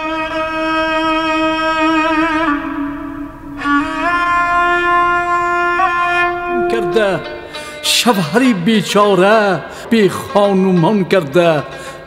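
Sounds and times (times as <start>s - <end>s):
slow violin melody: 0.0s - 8.2s.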